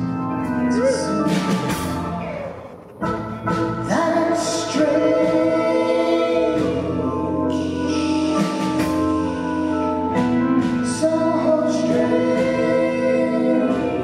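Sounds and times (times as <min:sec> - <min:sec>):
live rock band playing: 0:00.0 - 0:14.0
person singing: 0:03.9 - 0:08.7, 0:10.6 - 0:14.0.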